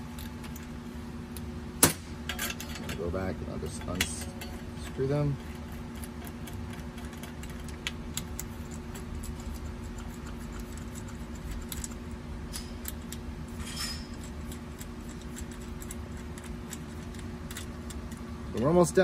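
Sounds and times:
steady low hum: 0.0s - 19.0s
metal scrape: 13.5s - 14.6s.

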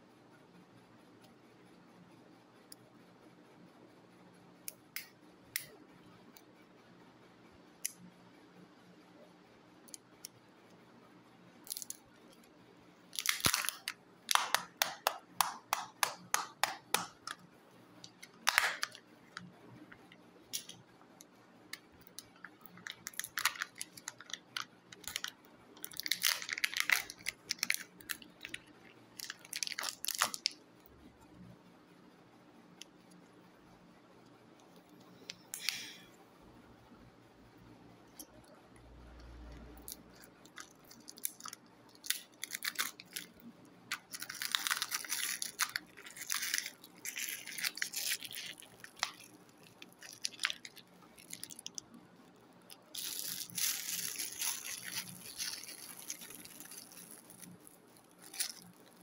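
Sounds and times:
plastic shell and foil crackling: 13.1s - 20.8s, 22.0s - 30.6s, 39.8s - 51.9s, 52.7s - 59.0s.

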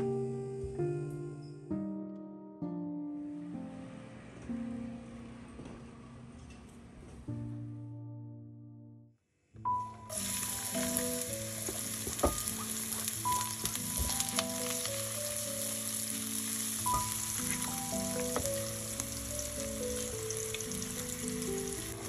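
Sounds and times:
soft melodic background music: 0.0s - 22.0s
onion sizzling in oil: 10.0s - 22.0s
spatula stirring in pan: 11.6s - 14.8s.

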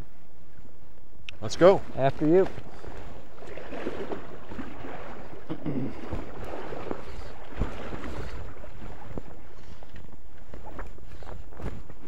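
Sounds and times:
waders sloshing through water: 1.8s - 11.8s.

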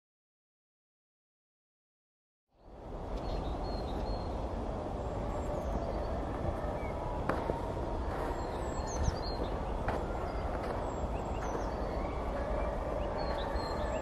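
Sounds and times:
low outdoor rumble: 2.6s - 14.0s
faint high bird chirps: 5.0s - 14.0s.

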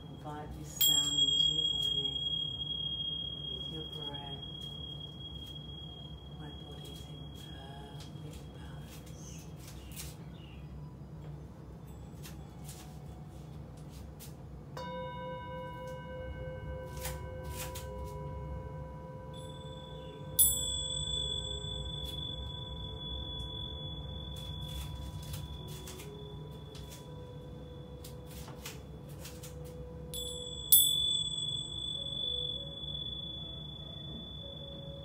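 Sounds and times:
handheld metal chime struck: 0.0s - 9.3s, 19.3s - 35.0s
singing bowl ringing: 0.0s - 10.0s, 14.7s - 35.0s.

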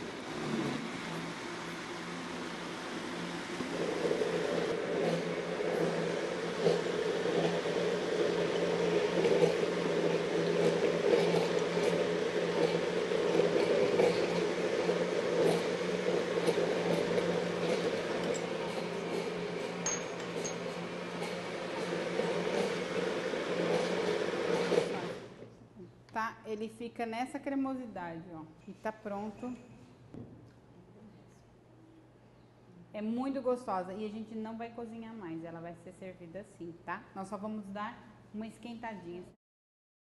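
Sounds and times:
blender motor running: 0.0s - 25.4s.

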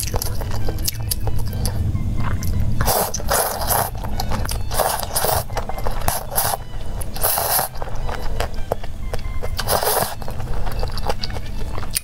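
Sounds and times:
chewing: 0.0s - 12.0s
person slurping noodles: 2.2s - 8.6s, 9.4s - 11.2s.

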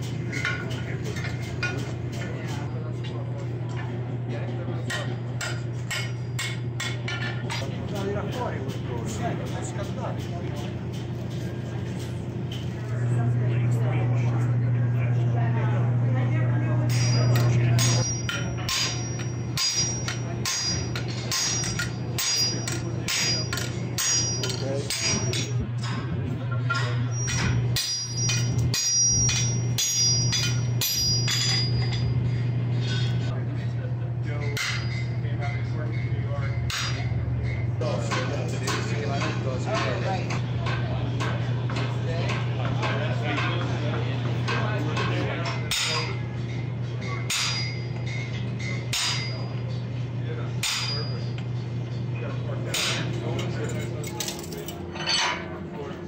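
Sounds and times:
hammer striking steel anvil: 4.9s - 7.7s, 16.9s - 26.0s, 26.7s - 33.2s, 34.4s - 43.6s, 44.5s - 49.6s, 50.6s - 51.4s, 52.7s - 53.5s.

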